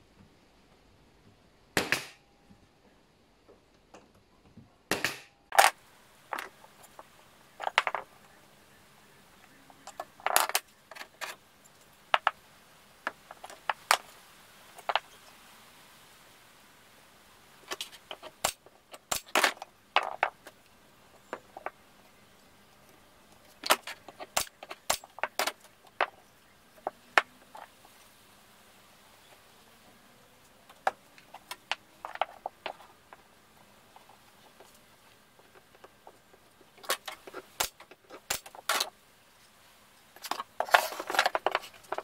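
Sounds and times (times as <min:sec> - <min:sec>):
pneumatic nailer shots: 0:01.8 - 0:02.2, 0:04.9 - 0:05.4.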